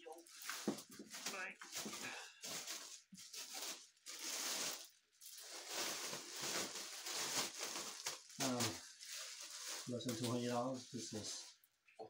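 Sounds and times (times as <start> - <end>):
plastic wrap crinkling: 0.0 - 11.7.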